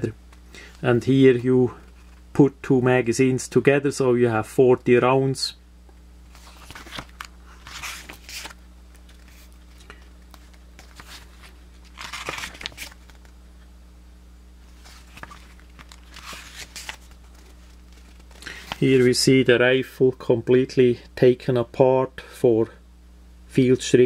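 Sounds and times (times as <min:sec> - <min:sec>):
faint steady hum: 0:00.0 - 0:24.0
pages being turned: 0:06.3 - 0:13.3, 0:14.7 - 0:19.2.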